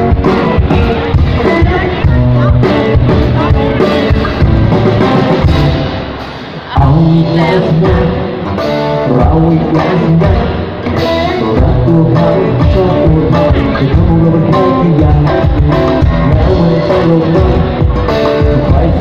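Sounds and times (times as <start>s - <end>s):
acoustic guitar: 0.0s - 19.0s
bass guitar: 0.0s - 19.0s
drum kit: 0.0s - 19.0s
electric guitar: 0.0s - 19.0s.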